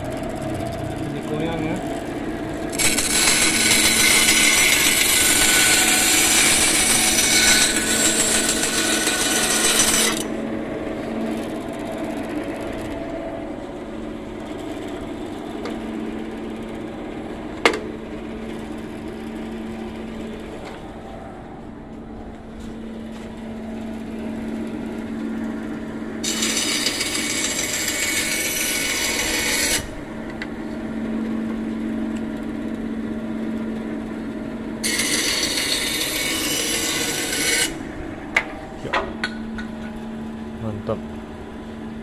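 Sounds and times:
bandsaw humming: 0.0 - 21.6, 24.0 - 31.7, 34.1 - 42.0
saw blade rasping through wood: 2.7 - 10.3, 26.2 - 29.9, 34.8 - 37.8.

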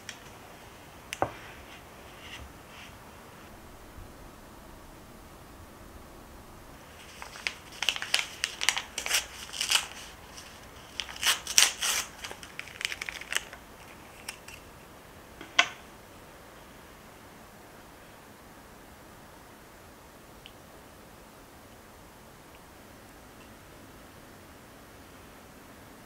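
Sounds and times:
paper filter crinkling and tearing: 6.9 - 14.7.

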